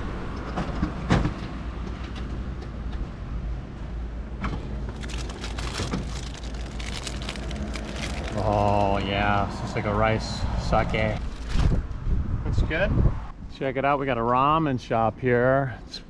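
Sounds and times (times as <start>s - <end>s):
plastic wrapper crinkling and clatter: 4.7s - 9.2s, 11.0s - 11.7s.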